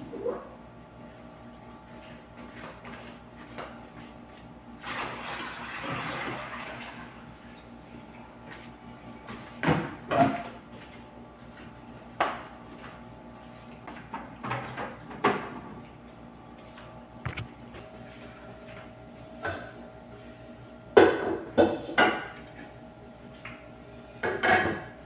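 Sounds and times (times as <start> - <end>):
water pouring from tap: 4.8 - 7.1.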